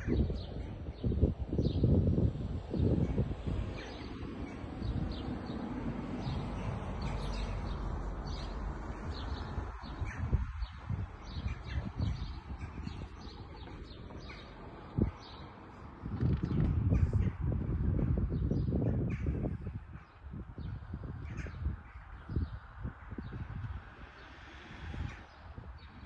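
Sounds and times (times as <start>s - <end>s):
small birds chirping: 2.7s - 15.6s
low rushing noise: 22.6s - 26.0s.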